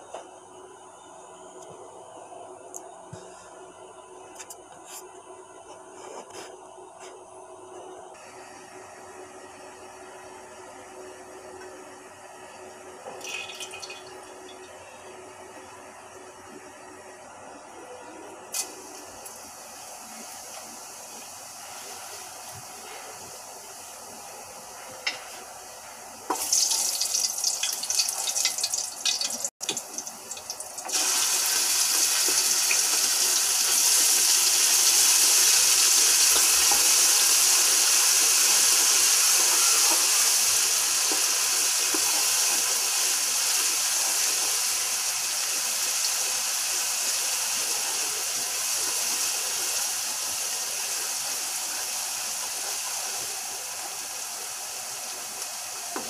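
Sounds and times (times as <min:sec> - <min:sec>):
food sizzling in oil: 0:26.3 - 0:56.0.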